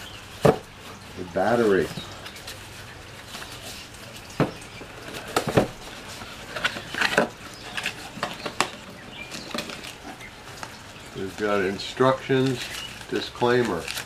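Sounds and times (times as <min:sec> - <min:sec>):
cardboard boxes knocking and scraping: 0:00.3 - 0:00.7, 0:04.4 - 0:10.2.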